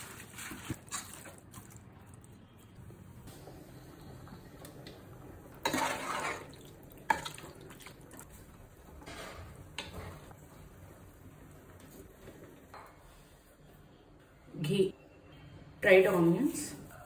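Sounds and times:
metal spatula stirring in pot: 5.6s - 7.8s.

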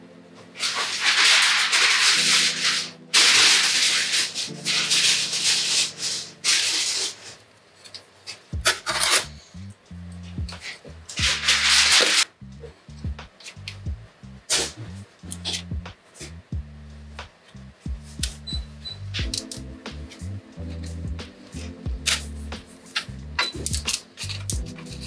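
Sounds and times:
background music: 0.0s - 7.2s, 8.5s - 25.0s
rasping rubbing strokes: 0.6s - 7.4s, 10.2s - 13.8s.

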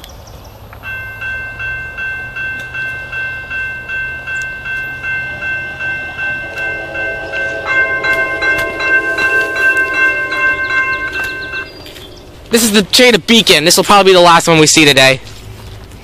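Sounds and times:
low steady tones: 0.8s - 13.2s
crossing warning bell ringing: 0.8s - 14.4s.

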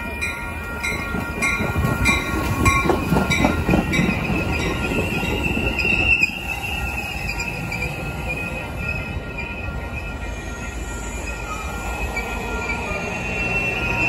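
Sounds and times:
train cars rolling past: 0.0s - 14.0s
high steady squeal: 4.0s - 14.0s.

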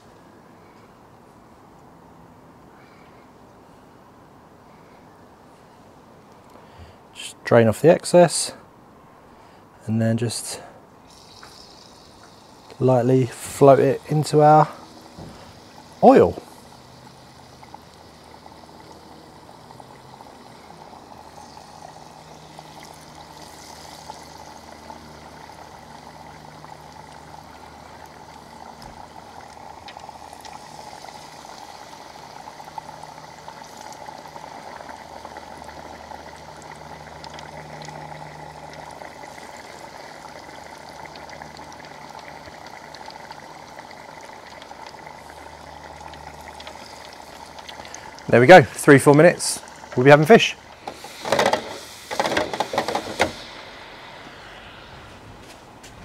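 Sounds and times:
oil bubbling and sizzling: 11.0s - 56.0s.

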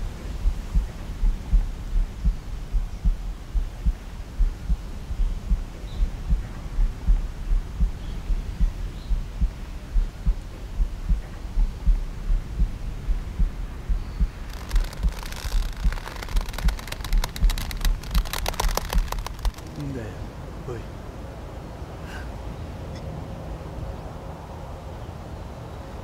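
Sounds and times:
low heartbeat-like thudding: 0.0s - 19.8s
crackle of sharp clicks: 14.4s - 19.8s.

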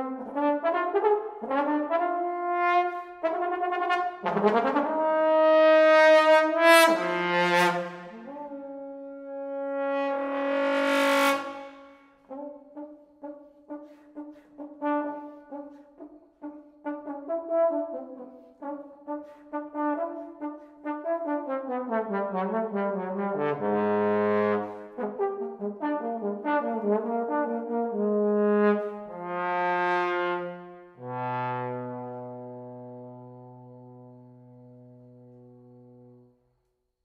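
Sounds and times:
solo trombone playing: 0.0s - 36.3s.

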